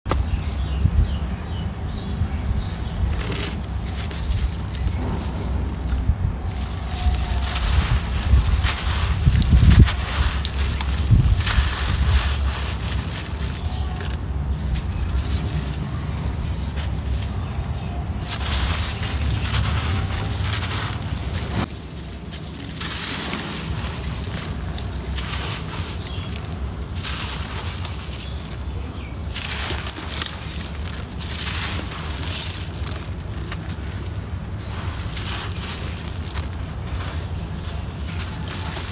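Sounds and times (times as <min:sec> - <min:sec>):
sand blocks crunching: 0:00.1 - 0:38.9
low rumble: 0:03.8 - 0:38.9
grains pouring and hissing: 0:06.5 - 0:13.9, 0:18.2 - 0:28.7, 0:34.4 - 0:38.9.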